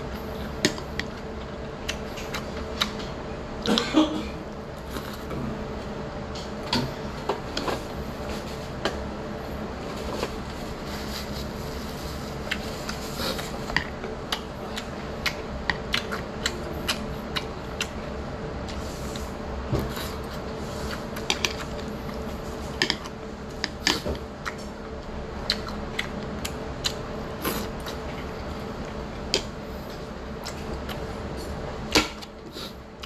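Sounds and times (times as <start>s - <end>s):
background hum: 0.0s - 33.0s
chewing: 12.3s - 32.8s.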